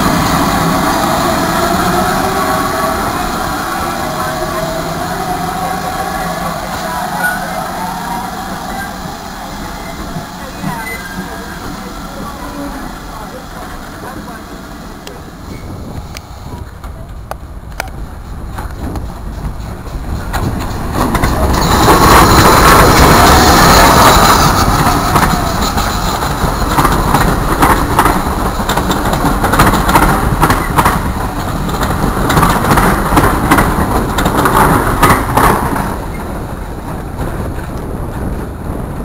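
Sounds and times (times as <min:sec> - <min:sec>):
high steam hiss: 0:00.0 - 0:39.0
steam locomotive passing: 0:00.0 - 0:39.0
wheels clicking over rail joints: 0:15.0 - 0:39.0.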